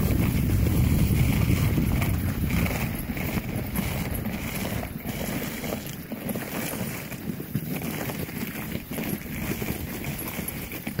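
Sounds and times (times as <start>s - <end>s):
dog footfalls crunching snow: 0.0s - 11.0s.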